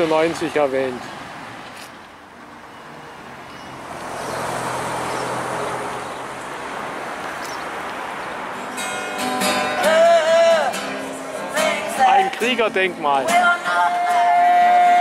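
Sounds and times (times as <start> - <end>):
road traffic noise: 0.0 - 15.0
music: 8.6 - 15.0.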